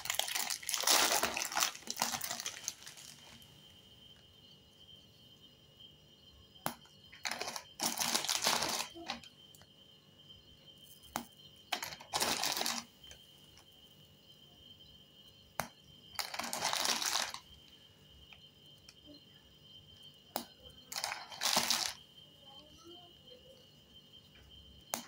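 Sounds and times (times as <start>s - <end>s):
biscuit wrapper crinkling: 0.0s - 3.4s, 7.3s - 9.1s, 11.8s - 12.8s, 16.2s - 17.4s
faint high whine: 0.0s - 25.0s.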